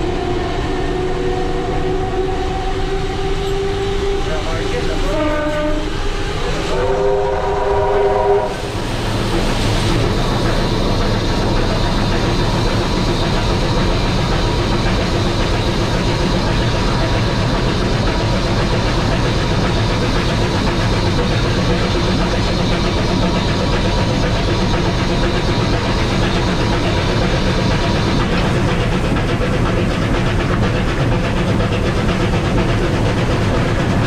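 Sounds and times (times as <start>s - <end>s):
train whistle blasts: 0.0s - 8.7s
train wheels rumbling on rails: 0.0s - 34.0s.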